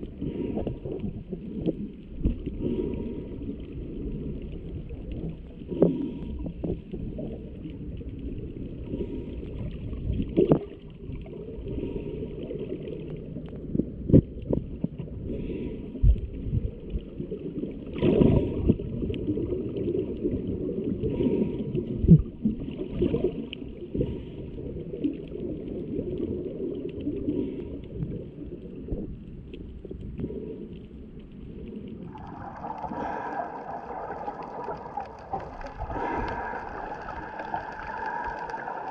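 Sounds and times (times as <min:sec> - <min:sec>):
underwater rumble of moving water: 0:00.0 - 0:38.9
bright rushing water: 0:32.0 - 0:38.9.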